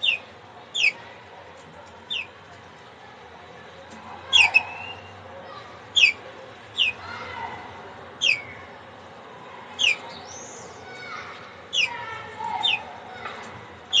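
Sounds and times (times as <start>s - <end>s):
canary calling: 0.0s - 1.0s, 2.0s - 2.4s, 4.2s - 5.2s, 5.9s - 8.7s, 9.6s - 14.0s.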